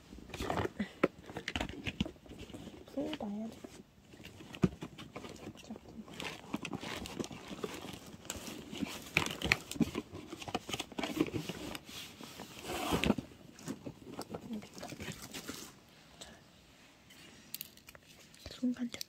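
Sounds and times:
plastic bags crinkling: 4.2 - 15.8.

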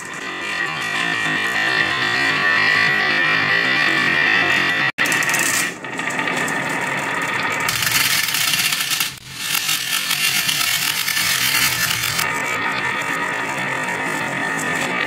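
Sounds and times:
marbles rolling into toy truck: 7.6 - 12.3
glass marbles rattling down wooden run: 7.7 - 12.2.

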